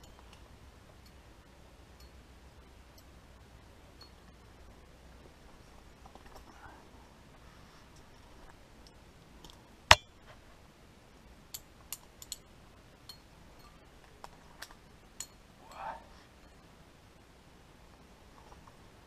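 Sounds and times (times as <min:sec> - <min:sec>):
sharp metallic knock: 0:09.9 - 0:10.1.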